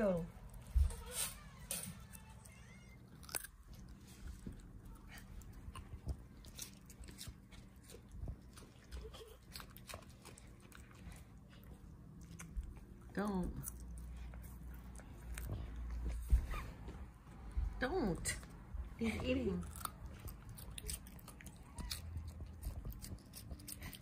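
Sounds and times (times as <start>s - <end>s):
dog crunching carrot: 1.6s - 16.4s, 19.2s - 24.0s.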